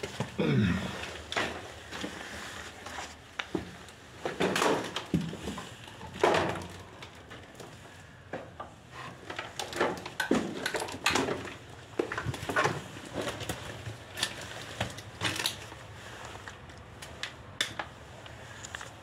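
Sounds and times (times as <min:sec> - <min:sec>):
footsteps crunching over rubble: 0:00.0 - 0:19.0.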